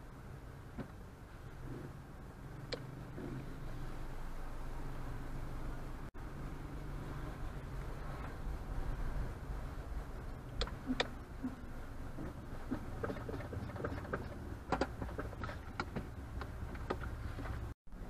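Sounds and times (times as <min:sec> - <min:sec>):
car road and engine rumble: 0:00.0 - 0:18.0.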